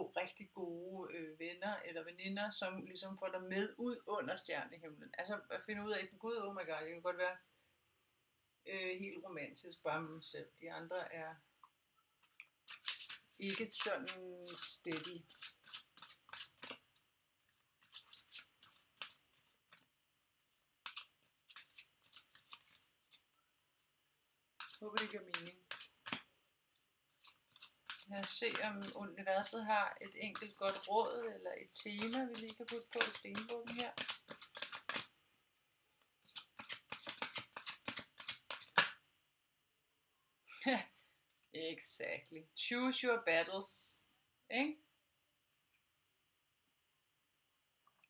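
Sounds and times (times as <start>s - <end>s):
cards being shuffled: 12.2s - 23.4s, 24.6s - 35.1s, 35.9s - 39.0s.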